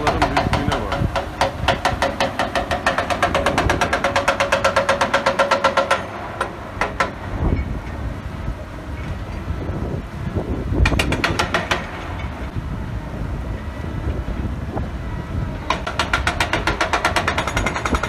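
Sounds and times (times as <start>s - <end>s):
hydraulic rock breaker hammering rock: 0.0s - 7.7s, 10.8s - 12.5s, 15.6s - 18.0s
diesel engine running low: 0.0s - 18.0s.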